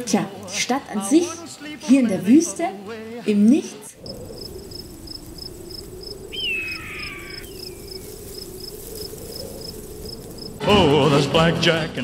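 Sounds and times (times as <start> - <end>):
cricket chirping: 4.0 - 10.6
falling pitched call: 6.1 - 9.8.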